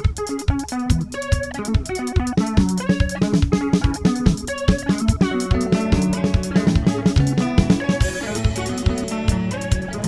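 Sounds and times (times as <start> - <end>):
electric guitar notes picked: 0.0 - 10.0
fast drum kit beat: 0.0 - 10.0.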